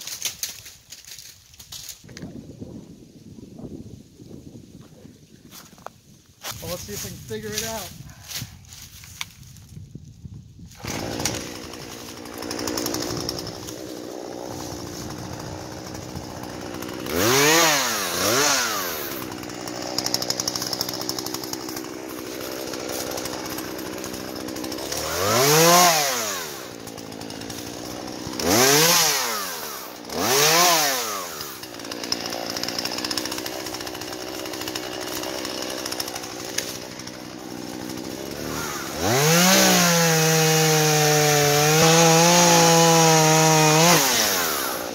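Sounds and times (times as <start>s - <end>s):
chainsaw revving: 10.7s - 44.9s
chainsaw idling: 10.8s - 44.9s.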